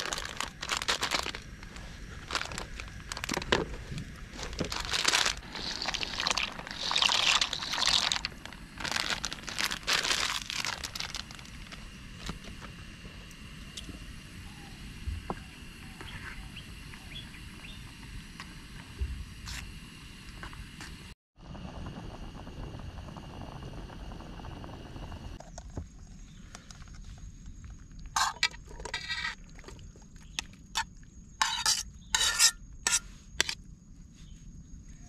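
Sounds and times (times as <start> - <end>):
plastic rustling and crinkling: 0.0 - 12.7.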